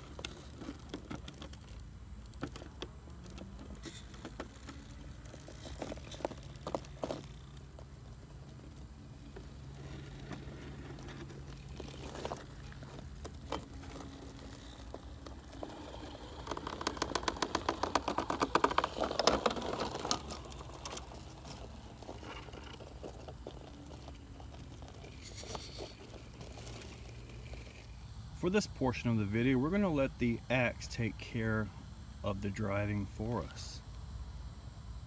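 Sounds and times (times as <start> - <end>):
rapid crackling scrapes: 0.0 - 28.0
toy car tyres scraping concrete: 0.0 - 28.5.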